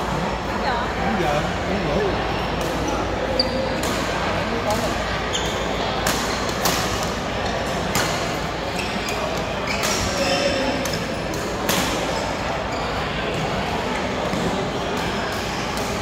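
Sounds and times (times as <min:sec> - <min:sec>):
rackets hitting shuttlecock: 0:06.0 - 0:08.4, 0:09.1 - 0:12.2.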